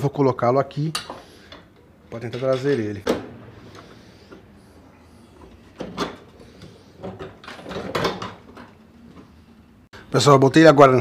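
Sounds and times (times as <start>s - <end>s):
metal knocking and scraping: 2.2s - 3.0s, 5.4s - 8.8s.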